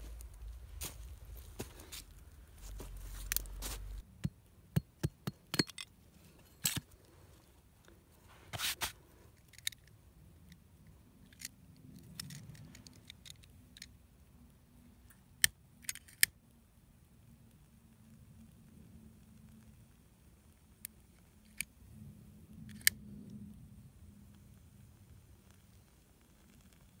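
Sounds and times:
dry sticks snapping: 0:01.7 - 0:04.0.

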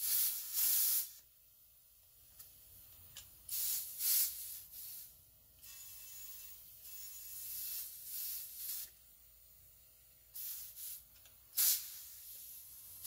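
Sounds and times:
compressed air hissing from valve: 0:00.0 - 0:01.3, 0:03.4 - 0:13.0.

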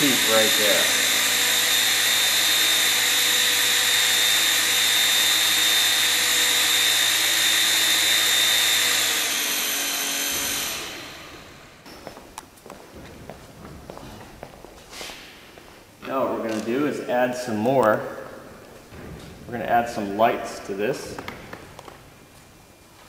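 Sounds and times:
small motor high-pitched whine: 0:00.0 - 0:11.8.

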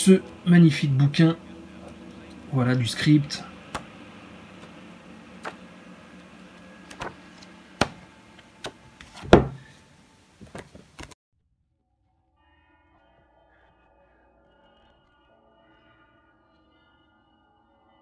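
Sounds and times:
faint steady hum: 0:00.0 - 0:11.2
book knocking and rustling: 0:05.4 - 0:05.7, 0:06.9 - 0:09.7, 0:10.4 - 0:11.2.

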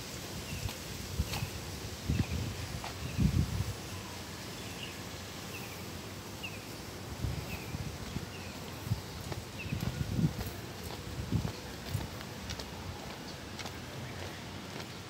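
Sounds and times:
footsteps on pavement: 0:00.5 - 0:03.4, 0:07.3 - 0:15.0.

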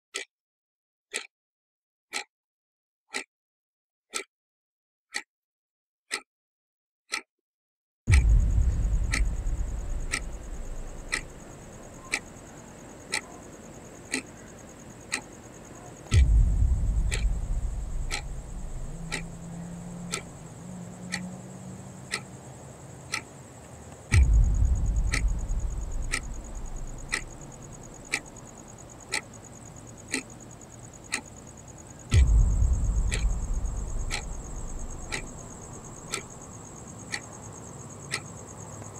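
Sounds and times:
deep boom: 0:08.1 - 0:12.4, 0:16.1 - 0:20.5, 0:24.1 - 0:28.3, 0:32.1 - 0:36.4
faint high whine: 0:08.1 - 0:13.7, 0:15.8 - 0:21.5, 0:24.1 - 0:28.9, 0:32.1 - 0:37.0
clock-like ticking: 0:08.1 - 0:15.4, 0:16.0 - 0:21.4, 0:22.0 - 0:22.3, 0:24.1 - 0:31.5, 0:32.1 - 0:38.3.

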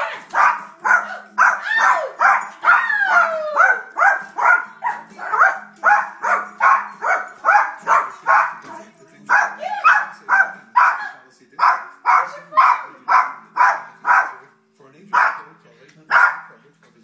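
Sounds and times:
small dog barking rapidly: 0:00.2 - 0:02.8, 0:03.6 - 0:08.6, 0:09.3 - 0:11.0, 0:11.6 - 0:14.4, 0:15.2 - 0:15.4, 0:16.1 - 0:16.5.

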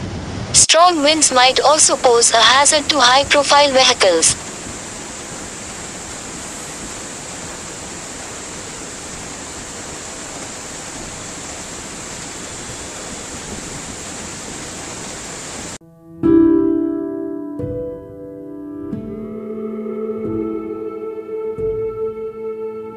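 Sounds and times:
floodwater rushing: 0:00.8 - 0:15.8.

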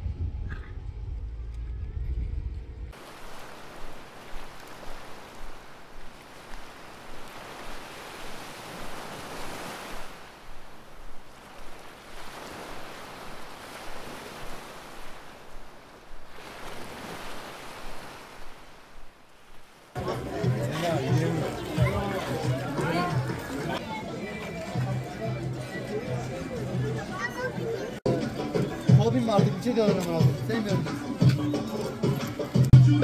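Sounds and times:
sea waves washing onto beach: 0:02.9 - 0:25.7.

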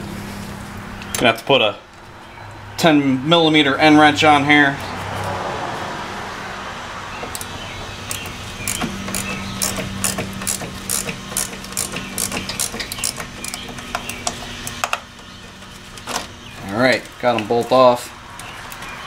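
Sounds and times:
ratcheting wrench clicking: 0:08.1 - 0:13.6.

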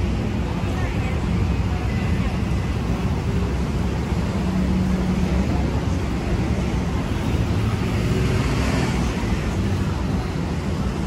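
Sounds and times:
city street noise: 0:00.0 - 0:11.0
traffic rumble: 0:00.0 - 0:11.0.

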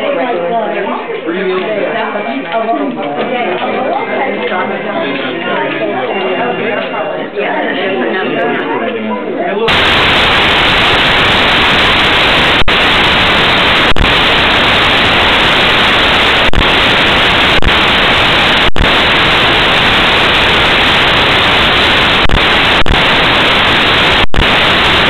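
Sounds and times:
static hiss: 0:09.7 - 0:25.0.

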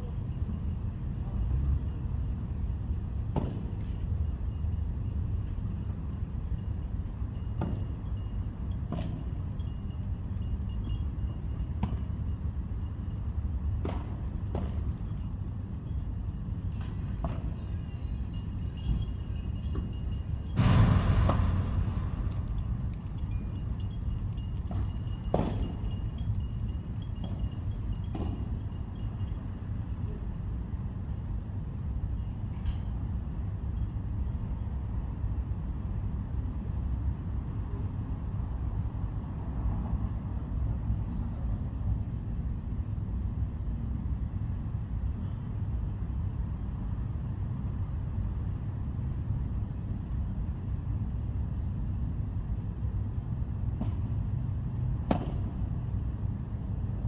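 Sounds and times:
low background rumble: 0:00.0 - 0:32.4
sharp knocks: 0:20.5 - 0:23.2, 0:24.6 - 0:25.8, 0:55.1 - 0:55.5.

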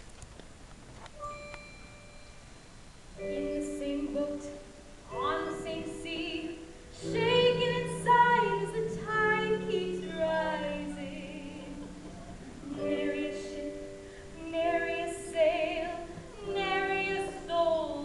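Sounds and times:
held accompaniment notes: 0:01.2 - 0:18.0
person singing: 0:05.1 - 0:18.0.

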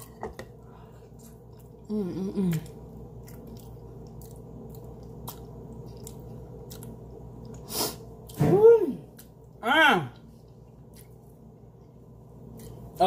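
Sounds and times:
chewing: 0:01.0 - 0:08.4, 0:10.2 - 0:11.4
person humming: 0:01.9 - 0:02.8.

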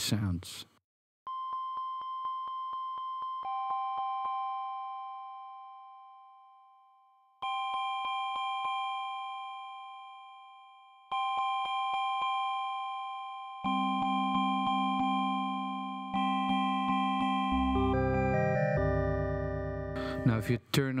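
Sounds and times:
synthesizer chord: 0:16.1 - 0:20.6
low synthesizer tone: 0:17.5 - 0:20.6.

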